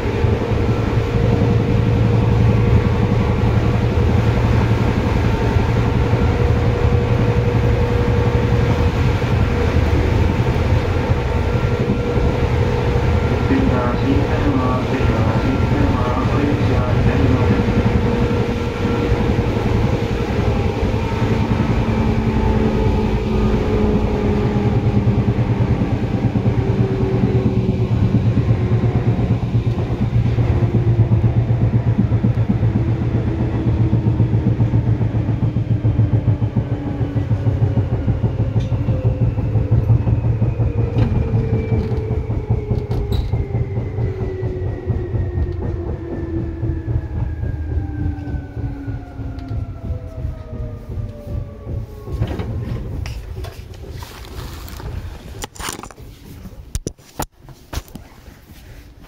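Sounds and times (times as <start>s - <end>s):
traction motor whine: 0.0s - 56.0s
train low rumble: 0.0s - 59.0s
wheel-on-rail clatter: 51.8s - 56.8s.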